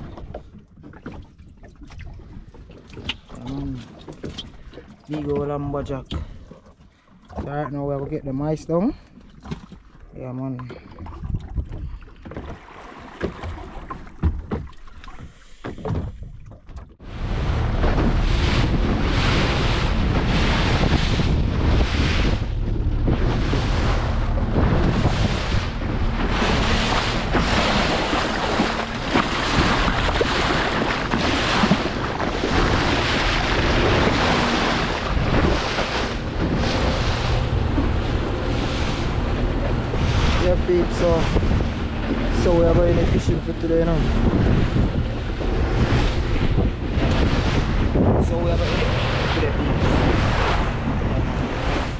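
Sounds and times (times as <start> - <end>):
low boat engine rumble: 0.0 - 51.9
water rushing along hull: 0.0 - 51.9
wind rushing on microphone: 17.0 - 51.9.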